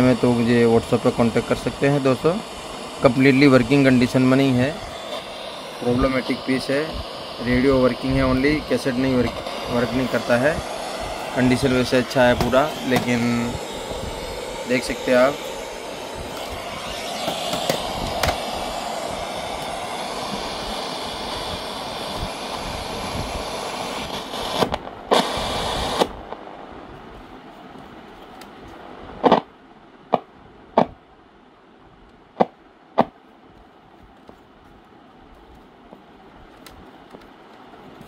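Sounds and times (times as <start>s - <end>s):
radio static hiss: 0.0s - 27.5s, 28.6s - 29.5s.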